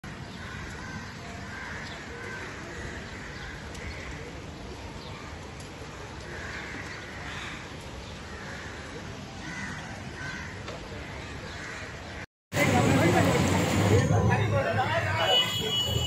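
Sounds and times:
crows cawing: 0.4s - 4.2s, 6.3s - 7.7s, 8.3s - 10.7s.

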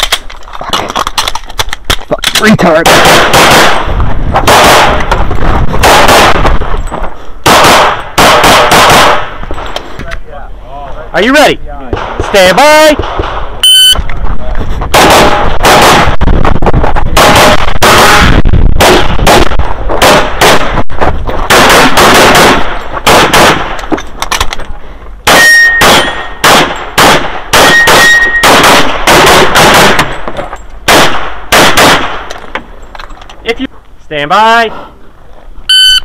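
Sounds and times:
handgun shots: 1.3s - 3.8s, 5.8s - 6.5s, 7.4s - 9.3s, 17.2s - 20.7s, 21.5s - 24.4s, 25.3s - 30.1s, 30.9s - 32.3s.

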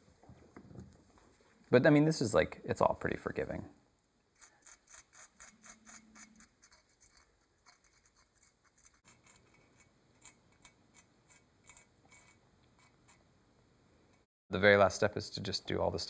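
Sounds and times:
hand tool scratching ceramic mug: 4.4s - 13.2s.

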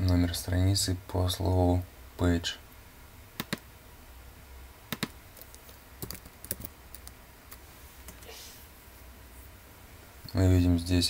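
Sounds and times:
keyboard and mouse clicks: 3.4s - 3.6s, 4.9s - 8.3s.

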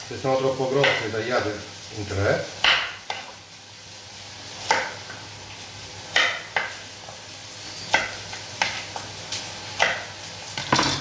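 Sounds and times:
onion sizzling in a pot: 0.0s - 11.0s
knife chopping on wooden board: 2.6s - 3.2s.

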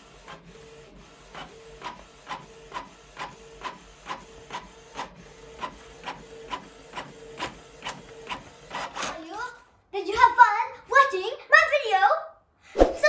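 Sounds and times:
printer hum: 0.0s - 9.1s.

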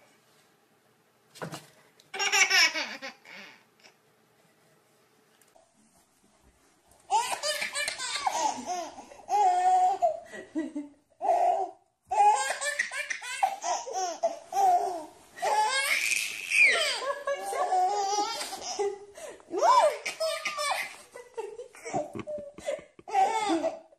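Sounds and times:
baby laughing: 2.2s - 4.0s, 7.1s - 10.2s, 11.2s - 19.0s, 19.6s - 23.9s
baby squealing: 12.2s - 17.0s.

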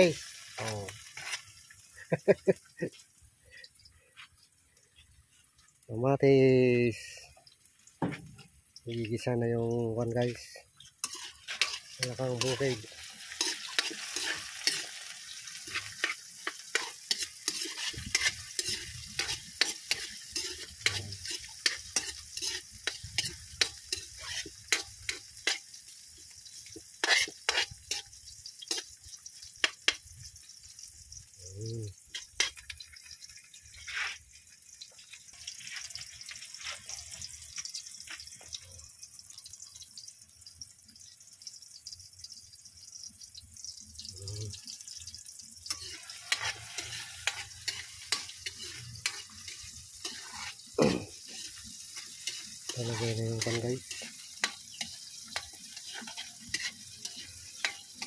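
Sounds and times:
food sizzling in hot oil: 0.0s - 58.0s
metal ladle scraping a wok: 11.0s - 25.8s, 27.0s - 28.9s, 33.7s - 34.3s, 45.7s - 58.0s.

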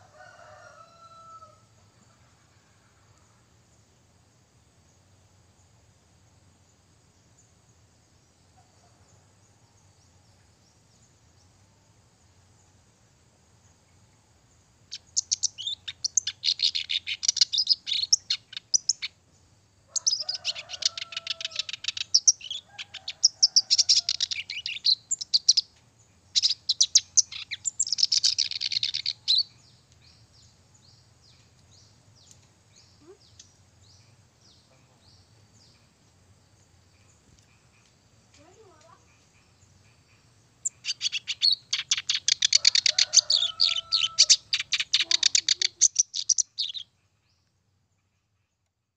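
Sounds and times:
reed warbler chattering song: 9.5s - 48.1s
faint bird calls: 26.3s - 29.6s, 36.9s - 47.3s.

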